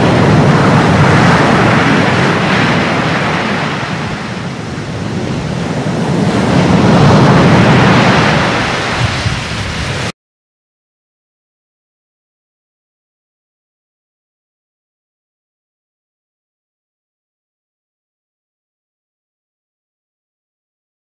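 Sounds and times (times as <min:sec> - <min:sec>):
waves washing: 0:00.0 - 0:10.1.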